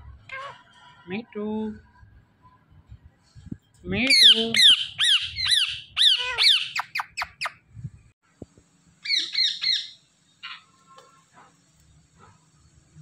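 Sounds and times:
parakeets squawking: 0:04.1 - 0:07.6, 0:09.0 - 0:10.7.

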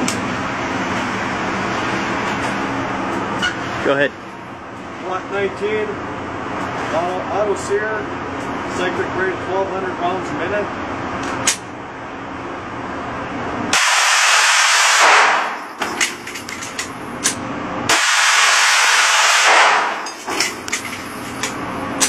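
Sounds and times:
single sharp gunshots: 0:13.8 - 0:15.6, 0:17.9 - 0:20.1.

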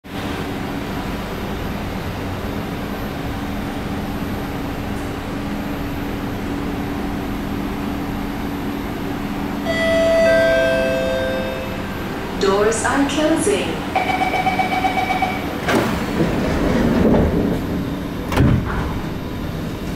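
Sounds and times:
train car hum and hiss: 0:00.0 - 0:19.9
low steady equipment tones: 0:09.6 - 0:15.6.

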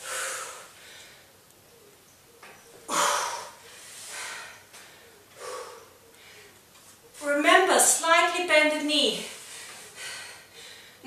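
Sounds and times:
woman breathing hard: 0:00.0 - 0:01.4, 0:02.8 - 0:06.6, 0:09.3 - 0:11.0.

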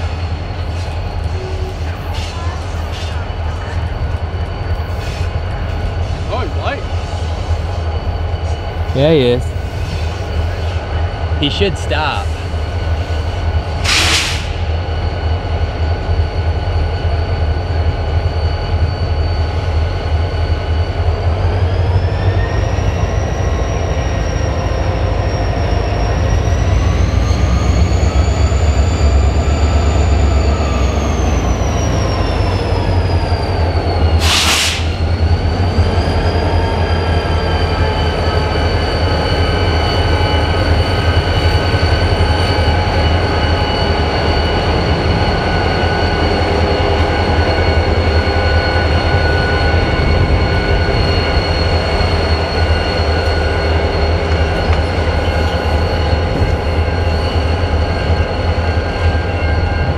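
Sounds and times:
locomotive engine rumble: 0:00.0 - 0:16.8
burst of hiss: 0:13.8 - 0:14.6, 0:34.2 - 0:35.0.

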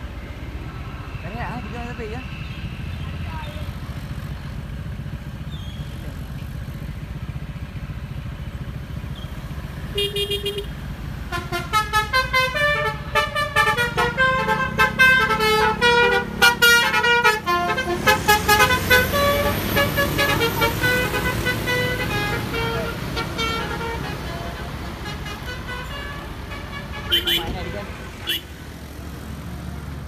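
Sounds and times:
engine and traffic rumble: 0:00.0 - 0:30.0
bus horn melody: 0:09.9 - 0:28.6.

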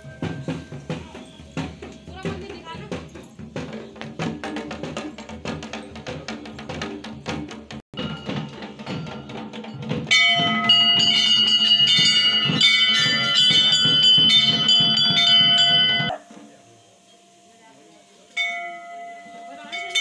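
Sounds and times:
temple bells ringing: 0:00.0 - 0:01.7, 0:08.0 - 0:16.2, 0:18.3 - 0:20.0
drum beaten rapidly: 0:00.0 - 0:16.2.

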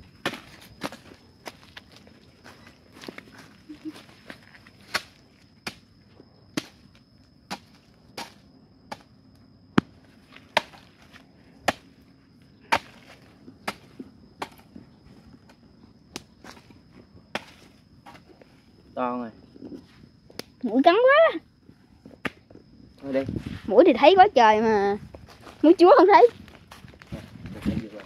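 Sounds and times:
digging tool striking hard earth: 0:12.7 - 0:14.7.

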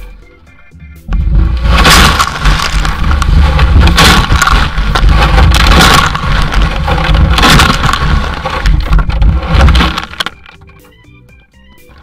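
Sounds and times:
load sloshing and tumbling: 0:01.1 - 0:10.6.

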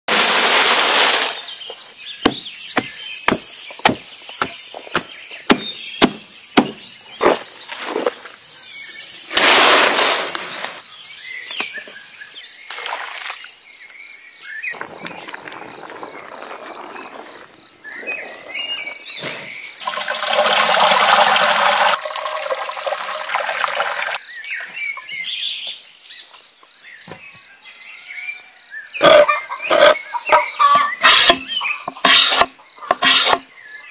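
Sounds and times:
leaves pouring from basket: 0:00.1 - 0:01.8, 0:09.3 - 0:10.8
pot boiling and bubbling: 0:14.8 - 0:17.5, 0:19.8 - 0:24.2.

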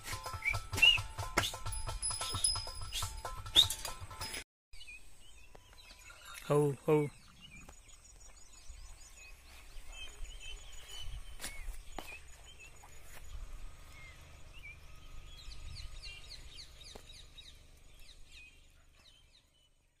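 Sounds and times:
small birds chirping: 0:04.8 - 0:20.0.

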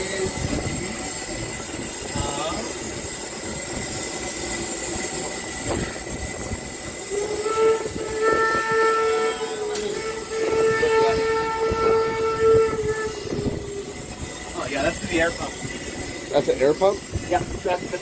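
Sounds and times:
steam hissing: 0:00.0 - 0:18.0
steam locomotive whistle: 0:05.1 - 0:17.1.

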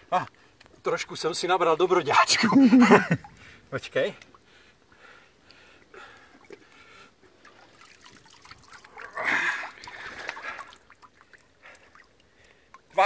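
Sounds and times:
water trickling: 0:00.2 - 0:13.0
water splashing off fish: 0:07.4 - 0:12.2.

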